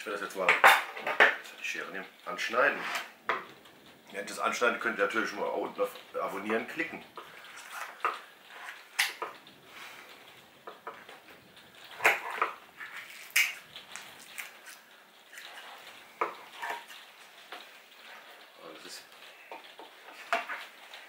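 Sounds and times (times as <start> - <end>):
kitchen shears crunching chicken skin: 13.0 - 15.7.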